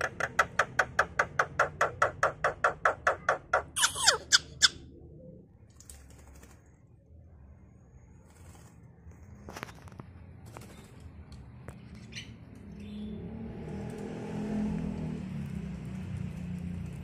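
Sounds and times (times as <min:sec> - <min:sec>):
bird harsh squawk: 0:03.1 - 0:04.8.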